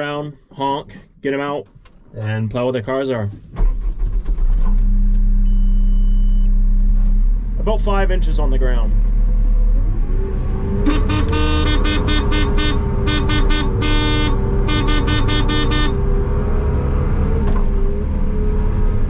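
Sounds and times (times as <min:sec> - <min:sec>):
engine running steadily: 0:03.6 - 0:19.0
horn honking short blasts: 0:10.8 - 0:16.1.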